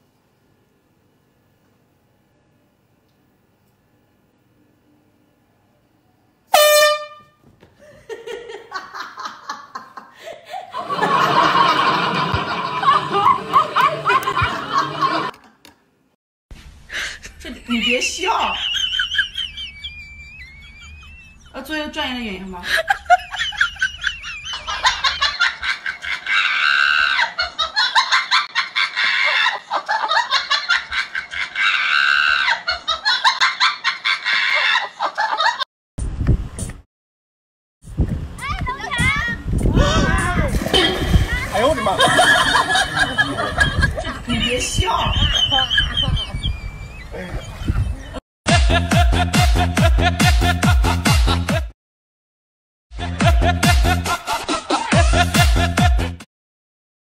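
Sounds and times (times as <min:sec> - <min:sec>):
air horn blast: 0:06.5 - 0:07.4
people laughing: 0:07.8 - 0:15.6, 0:17.0 - 0:21.5, 0:22.6 - 0:35.6, 0:39.8 - 0:51.7, 0:53.1 - 0:55.8.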